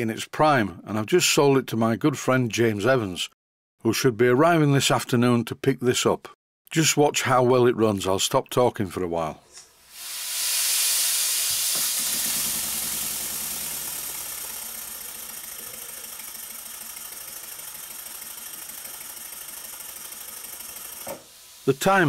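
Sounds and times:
hiss of air: 9.6 - 15.9, 20.5 - 22.0
model steam engine exhaust beat: 9.8 - 22.0.

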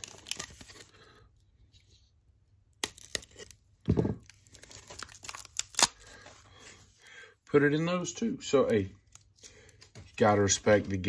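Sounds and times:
packing tape tearing: 4.2 - 6.2.

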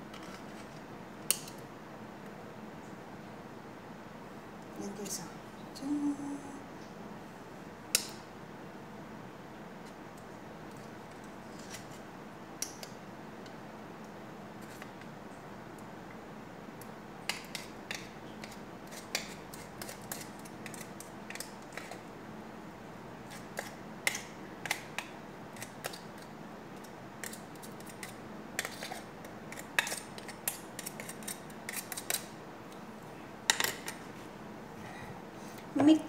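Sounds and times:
steady background hum: 0.0 - 36.0
knife cutting cheese: 27.2 - 32.3.

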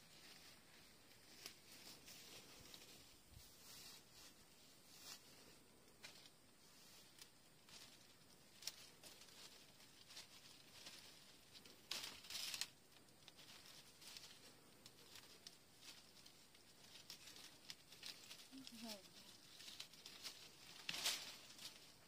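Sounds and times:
rustling leaves: 0.0 - 22.0.

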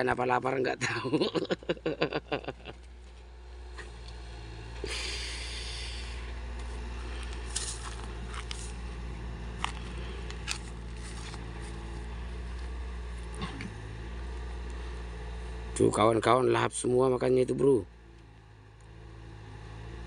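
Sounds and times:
burst of hiss: 4.8 - 6.2.

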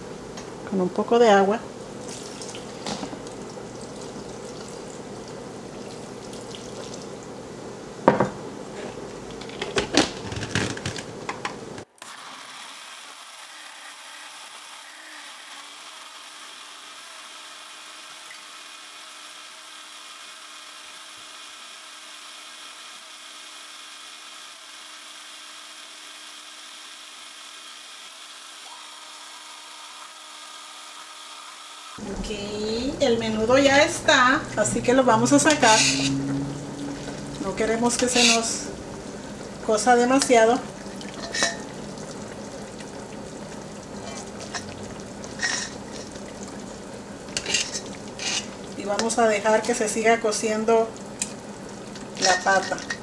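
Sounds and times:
blender running: 11.8 - 32.1, 32.8 - 41.9.

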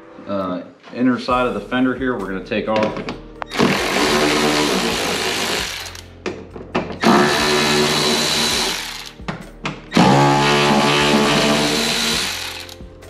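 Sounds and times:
cordless ratchet running: 3.5 - 6.0, 7.0 - 9.1, 10.0 - 12.8.

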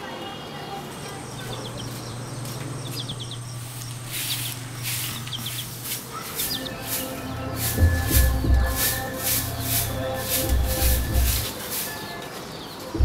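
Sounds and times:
small bird chirping: 0.4 - 13.0
steady low hum: 1.2 - 11.6
broom swishing across dirt: 2.0 - 13.0.

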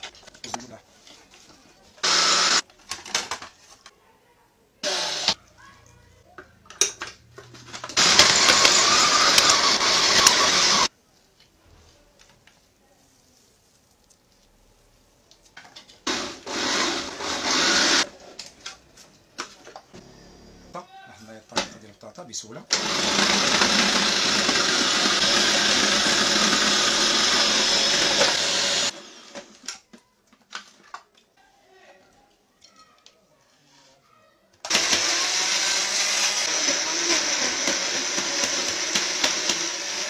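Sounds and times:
food chopper grinding herbs: 2.0 - 2.6, 4.8 - 5.4, 7.9 - 10.9, 16.1 - 18.1, 22.7 - 29.6, 34.7 - 40.0.

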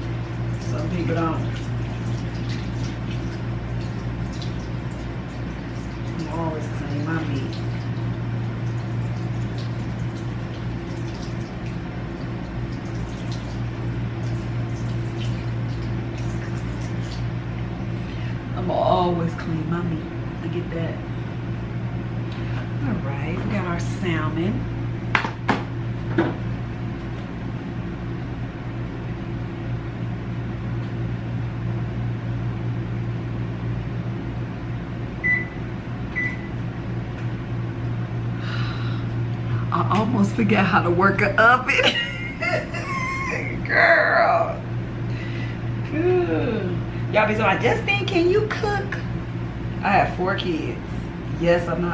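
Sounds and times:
water drips and splashes: 0.0 - 18.3
kitchen tap running: 0.0 - 18.4
oven control panel beeps: 35.2 - 36.6.

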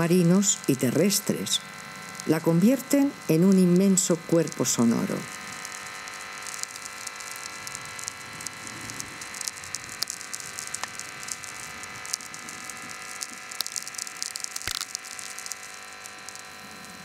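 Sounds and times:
dense crackling clicks: 0.0 - 17.0.

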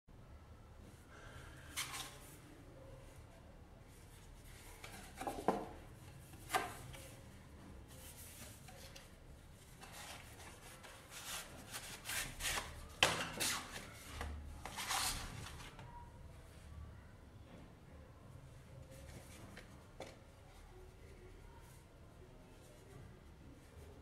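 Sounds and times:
paper rustling and sliding: 7.9 - 15.8.

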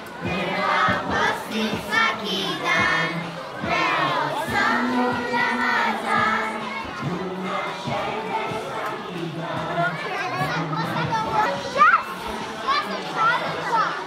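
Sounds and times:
children singing together: 0.0 - 13.7
crowd chatter: 0.0 - 14.0.

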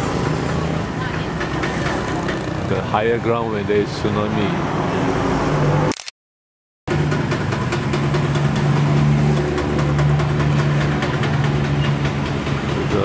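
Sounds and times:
road traffic: 0.0 - 6.2, 6.9 - 13.0.

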